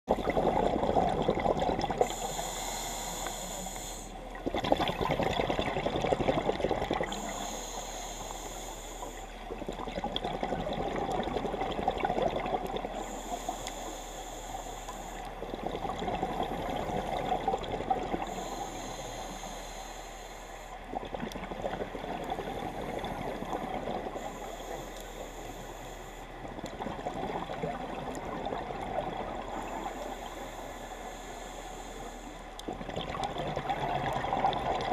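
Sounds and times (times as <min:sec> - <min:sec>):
bubbling exhaled air: 0:00.1 - 0:03.6, 0:04.4 - 0:08.6, 0:09.2 - 0:13.7, 0:15.4 - 0:19.1, 0:32.6 - 0:34.9
hissing regulator inhale: 0:02.0 - 0:04.3, 0:07.0 - 0:09.5, 0:12.9 - 0:15.5, 0:18.2 - 0:20.9, 0:22.4 - 0:26.4, 0:29.4 - 0:32.6.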